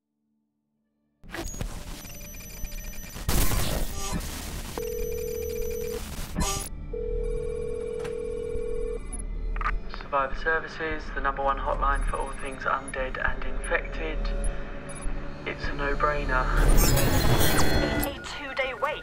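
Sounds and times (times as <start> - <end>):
electrical hum and static: 1.4 - 6.6
loud crackling burst: 3.0 - 4.8, 5.9 - 6.4
phone tone: 4.8 - 9.2.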